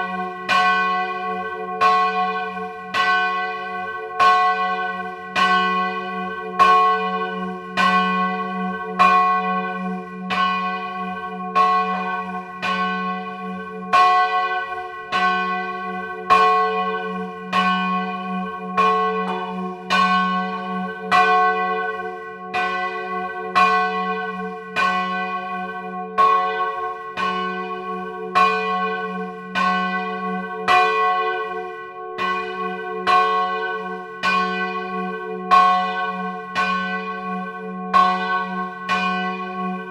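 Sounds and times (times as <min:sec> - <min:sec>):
church bell ringing: 0:00.0 - 0:39.9.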